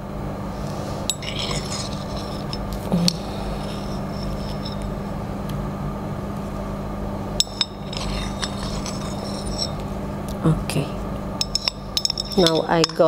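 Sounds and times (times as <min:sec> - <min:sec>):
steady background hum: 0:00.0 - 0:13.0
metal spatula scraping porcelain: 0:01.1 - 0:05.0, 0:07.4 - 0:09.8, 0:11.4 - 0:13.0.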